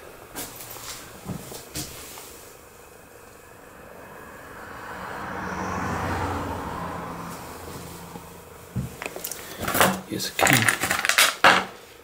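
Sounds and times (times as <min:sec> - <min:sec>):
vehicle passing by: 0:02.4 - 0:09.8.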